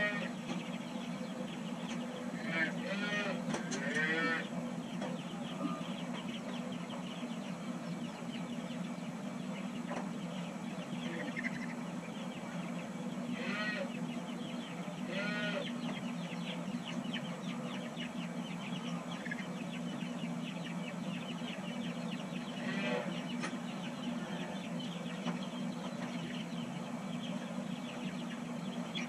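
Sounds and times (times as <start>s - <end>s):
steady low hum: 0.0s - 29.0s
calves bawling: 2.3s - 4.5s, 13.3s - 14.0s, 15.0s - 15.8s, 22.4s - 23.3s.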